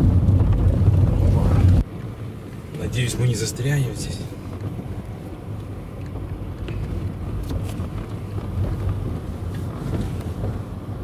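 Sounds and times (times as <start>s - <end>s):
car engine and tyres rumbling: 0.0s - 11.0s.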